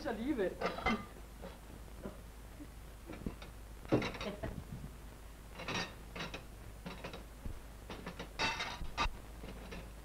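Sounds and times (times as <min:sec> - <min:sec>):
dishes clinking and knocking: 0:00.6 - 0:01.2, 0:03.1 - 0:04.6, 0:05.6 - 0:07.3, 0:07.9 - 0:10.0.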